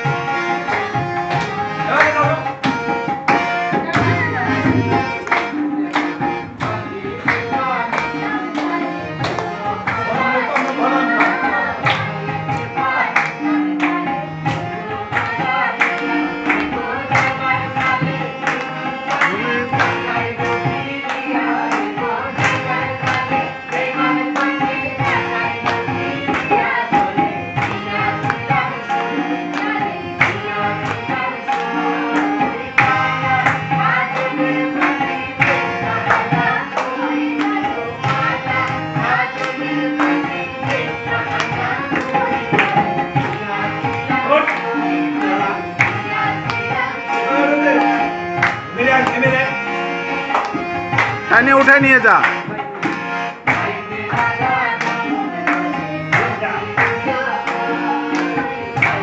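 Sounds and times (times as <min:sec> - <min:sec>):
tabla drums beating: 0:00.0 - 0:49.6, 0:50.2 - 0:57.5, 0:58.1 - 0:59.0
harmonium chords: 0:00.0 - 0:59.0
voices singing: 0:00.0 - 0:59.0.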